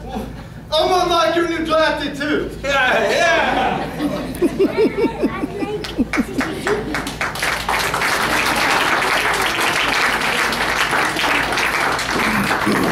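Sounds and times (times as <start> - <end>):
audience applauding: 5.8 - 12.9.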